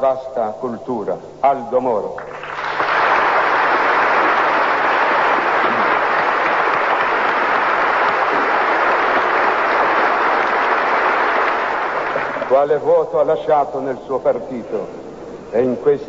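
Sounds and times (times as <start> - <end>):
crowd applauding: 2.2 - 12.8.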